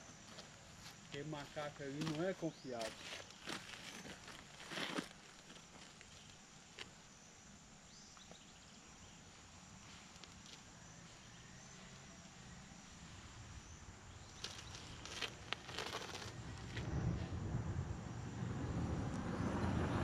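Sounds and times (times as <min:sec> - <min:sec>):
low rumble: 0:16.1 - 0:20.0.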